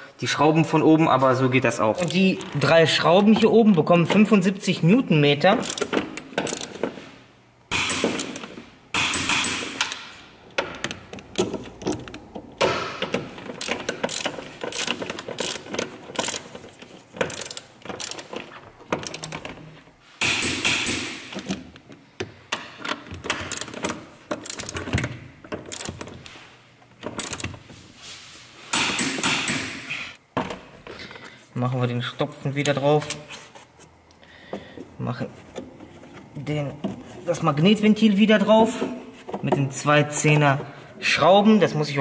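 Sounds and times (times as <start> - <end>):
ratcheting torque wrench clicking: 5.6 - 6.8, 13.5 - 16.6, 17.2 - 18.4, 19.0 - 19.4, 23.3 - 25.0, 25.7 - 26.1, 27.2 - 27.5.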